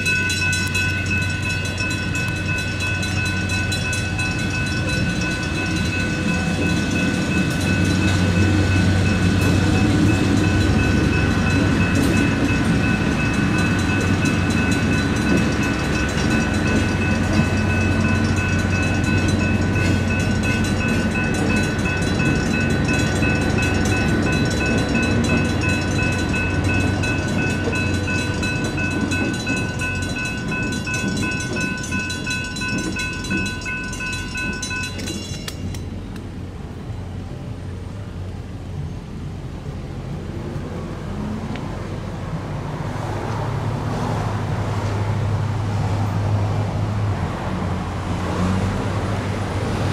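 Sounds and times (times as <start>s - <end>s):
electronic crossing bell ringing: 0.0s - 36.0s
freight train rumbling: 0.0s - 49.9s.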